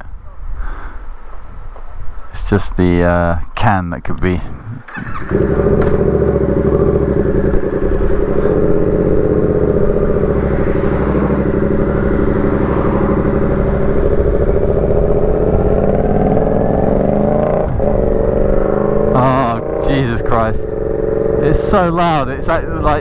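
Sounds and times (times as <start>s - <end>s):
motorcycle engine with loud exhaust: 4.9s - 23.0s.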